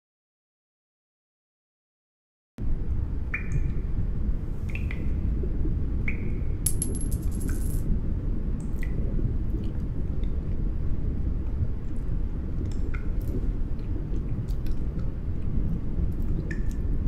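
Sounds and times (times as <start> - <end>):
clinking jingling rattle: 6.7 - 7.8.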